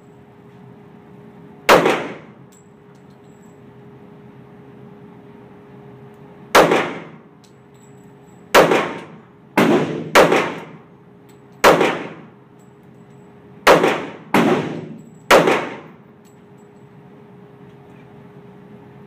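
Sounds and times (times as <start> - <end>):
pistol shots echoing: 1.7 - 2.4, 6.6 - 7.2, 8.5 - 10.8, 11.6 - 12.3, 13.6 - 16.0.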